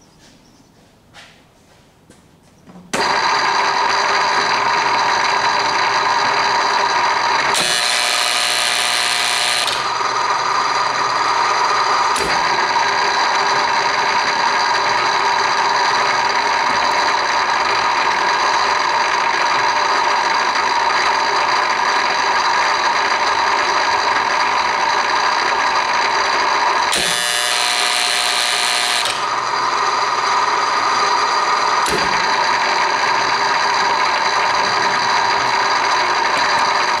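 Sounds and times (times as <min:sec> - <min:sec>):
machine hum and whine: 0:02.9 - 0:37.0
high-pitched machine whine: 0:03.0 - 0:37.0.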